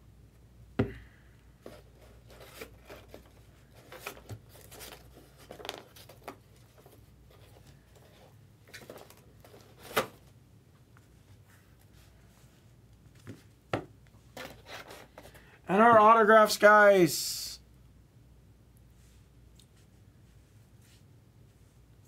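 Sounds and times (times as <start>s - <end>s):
cards and packaging rustling: 1.6s - 10.4s, 14.3s - 16.0s.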